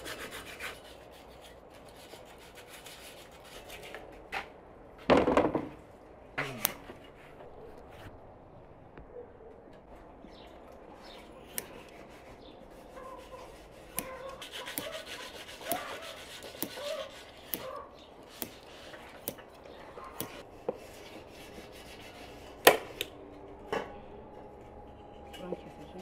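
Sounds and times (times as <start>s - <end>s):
scissors snipping foam: 11.4s - 12.0s, 13.2s - 20.4s.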